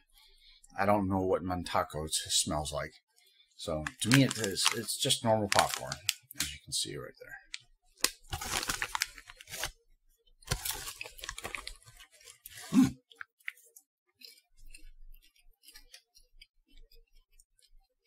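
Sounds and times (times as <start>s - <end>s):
popcorn being chewed: 3.7s - 6.6s, 10.4s - 18.0s
plastic snack bag crinkling: 3.8s - 6.6s, 7.5s - 9.7s, 10.5s - 12.7s.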